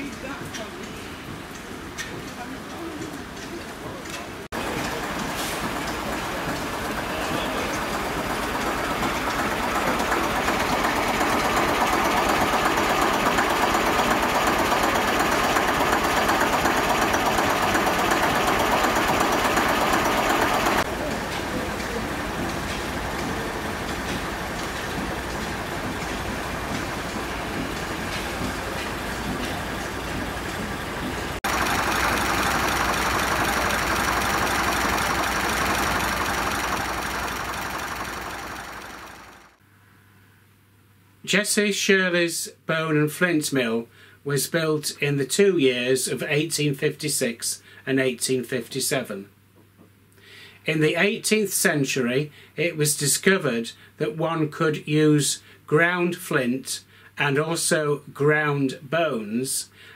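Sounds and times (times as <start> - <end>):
diesel engine idling with knocking: 4.6 - 39.6.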